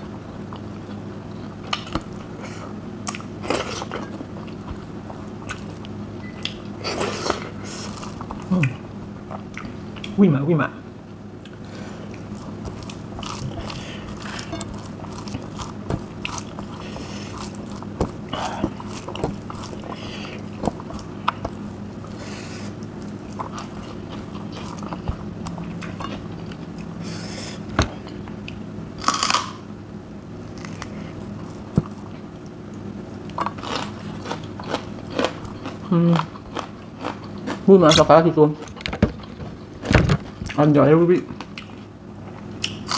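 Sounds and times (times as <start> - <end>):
steady low hum: 0.0 - 42.9
person chewing food: 0.4 - 10.2, 11.4 - 29.6, 30.5 - 40.6
crunchy bites: 12.1 - 26.0, 29.0 - 29.7.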